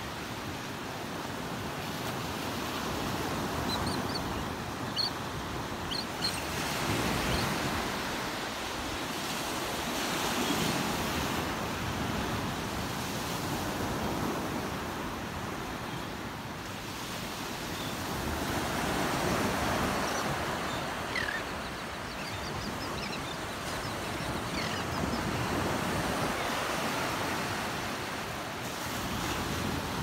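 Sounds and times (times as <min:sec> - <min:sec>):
seabird calls: 0:03.3 - 0:07.9, 0:18.9 - 0:26.8
surf washing up beach: 0:04.5 - 0:30.0.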